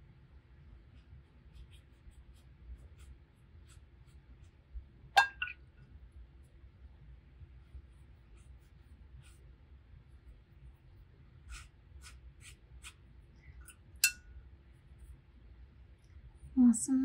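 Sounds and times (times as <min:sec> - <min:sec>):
brush ticking on paper: 0:00.8 - 0:04.8, 0:07.4 - 0:13.8
paintbrush knocking on glass jar: 0:05.2 - 0:05.6.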